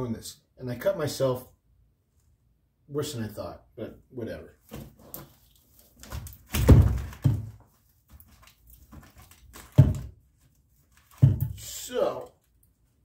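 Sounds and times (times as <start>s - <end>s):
wooden sticks thumping on plywood: 6.0s - 8.3s, 8.9s - 10.2s, 11.0s - 11.7s.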